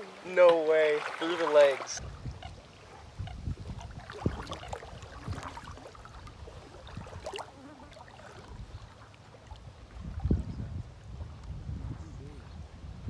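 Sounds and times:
shallow water lapping and splashing: 0:00.0 - 0:12.9
wind rumbling on microphone: 0:02.0 - 0:13.0.

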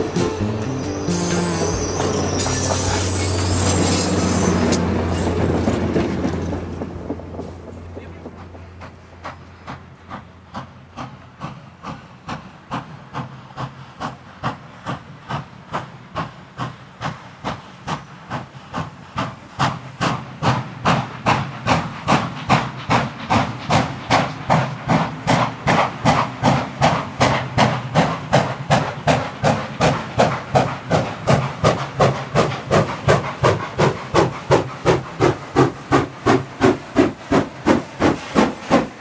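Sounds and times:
steam locomotive chuffing: 0:00.0 - 0:39.0.

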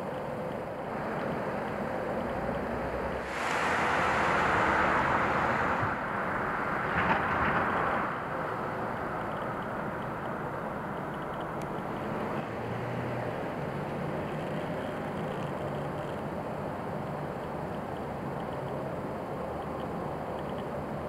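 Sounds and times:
steady outdoor rush: 0:00.0 - 0:21.0
vehicle tyres passing: 0:00.2 - 0:19.6.

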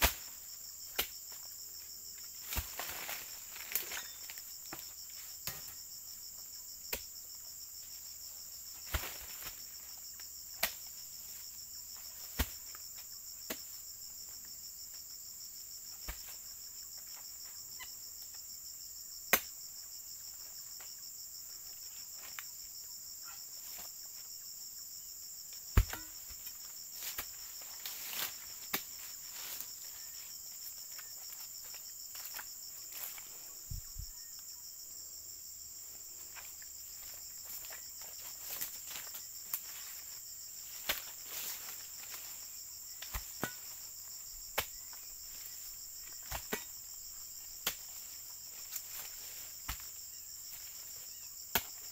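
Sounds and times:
sickle knocking against palm fronds: 0:00.0 - 0:01.4, 0:02.4 - 0:04.1, 0:04.7 - 0:05.8, 0:08.8 - 0:09.6, 0:10.6 - 0:10.9, 0:12.2 - 0:12.7, 0:13.4 - 0:13.7, 0:16.0 - 0:16.4, 0:19.3 - 0:19.5, 0:25.7 - 0:29.6, 0:40.7 - 0:42.3, 0:43.0 - 0:43.8, 0:44.5 - 0:44.8, 0:46.0 - 0:46.7, 0:47.6 - 0:48.0, 0:48.6 - 0:49.9, 0:51.5 - 0:51.9.

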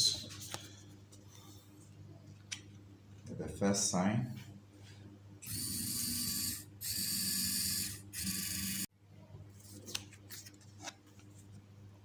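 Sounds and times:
small drive motors whirring: 0:05.4 - 0:08.9.

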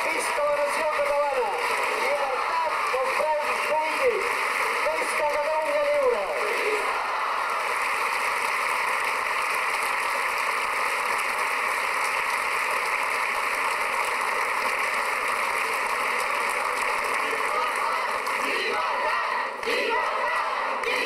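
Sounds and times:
crowd applauding: 0:00.0 - 0:21.0.

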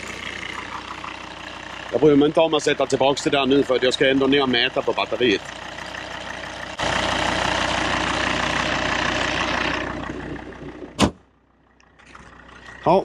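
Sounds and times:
car engine idling: 0:00.0 - 0:13.0
car bonnet slamming shut: 0:11.0 - 0:11.2.

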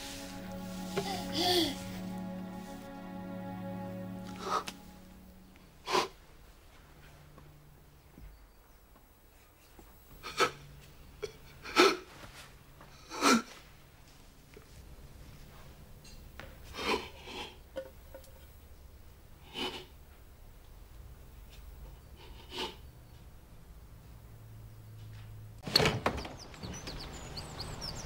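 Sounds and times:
man sobbing: 0:01.0 - 0:01.9.

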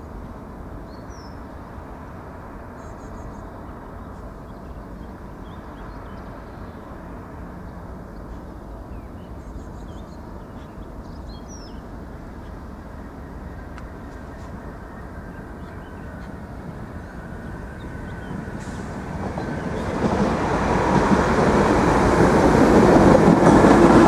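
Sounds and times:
small birds chirping: 0:02.7 - 0:07.0, 0:07.6 - 0:20.4.

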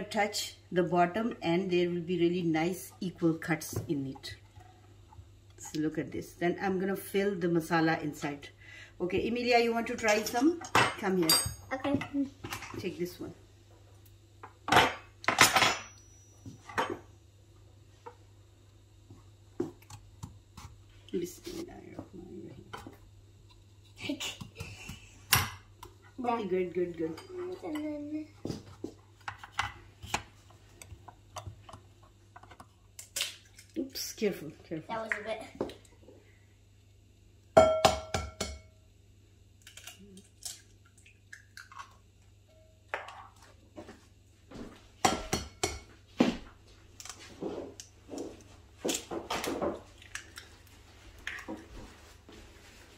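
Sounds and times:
knives clattering on a countertop: 0:10.0 - 0:12.1, 0:14.7 - 0:16.1
egg knocking on glass bowl: 0:37.6 - 0:38.7.

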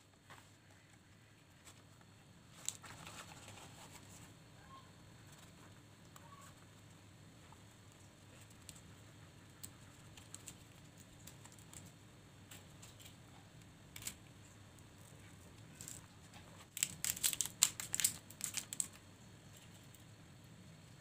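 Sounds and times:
banana leaf crinkling and rustling: 0:14.9 - 0:19.0.

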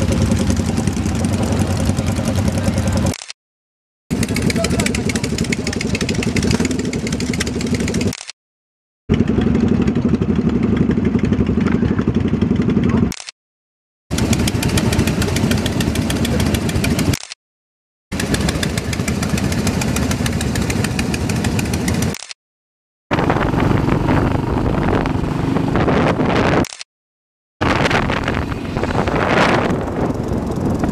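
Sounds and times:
motorcycle engines idling: 0:00.0 - 0:03.1, 0:04.1 - 0:08.1, 0:09.1 - 0:13.1, 0:14.1 - 0:17.1, 0:18.1 - 0:22.1, 0:29.7 - 0:30.9.

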